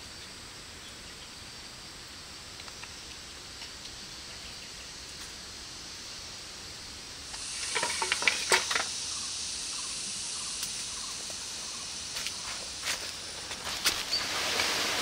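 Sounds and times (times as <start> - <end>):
insects hissing: 0.0 - 15.0
leaves and twigs crackling underfoot: 7.3 - 9.0, 10.6 - 15.0.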